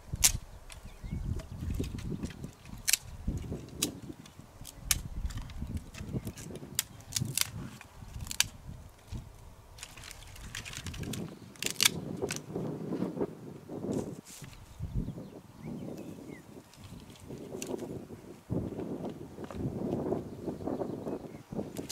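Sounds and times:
hatchet chopping branches: 0.1s - 9.2s, 9.8s - 12.4s.

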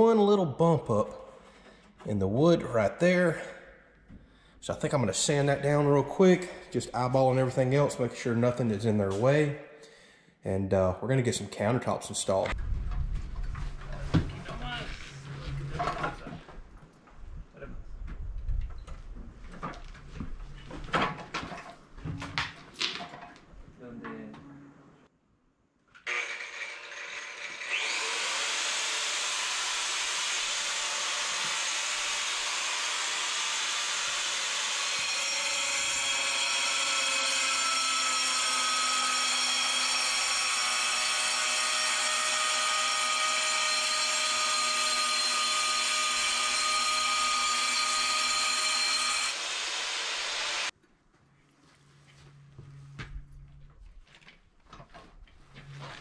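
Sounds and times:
power saw cutting stone: 26.0s - 50.7s.

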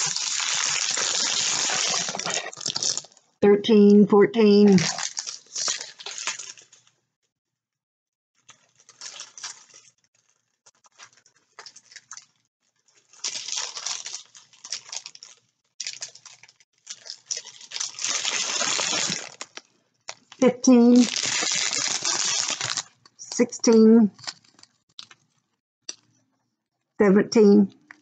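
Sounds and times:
plastic bags crinkling: 0.0s - 3.3s, 4.7s - 6.9s, 8.4s - 23.2s, 24.2s - 25.3s
small beads rattling in bag: 13.1s - 19.6s, 20.9s - 22.9s.

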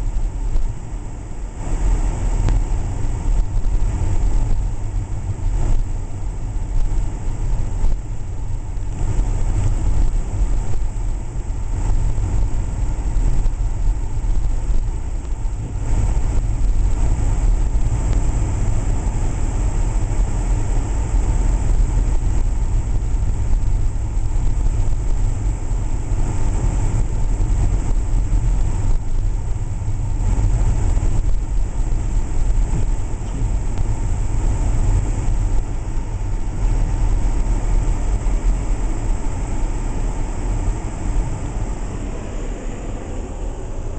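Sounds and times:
car engine and tyres rumbling: 0.0s - 43.9s.

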